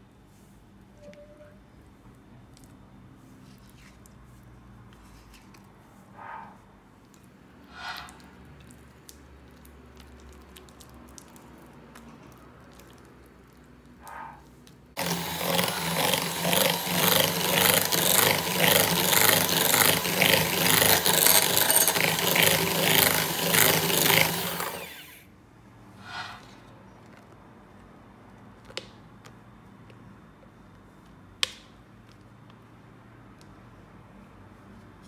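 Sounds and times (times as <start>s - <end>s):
electric hand mixer beating: 15.0s - 25.2s.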